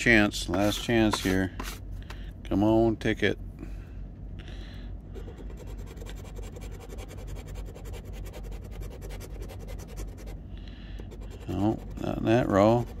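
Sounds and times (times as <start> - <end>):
scratching lottery ticket: 5.5 - 10.4, 11.1 - 13.0.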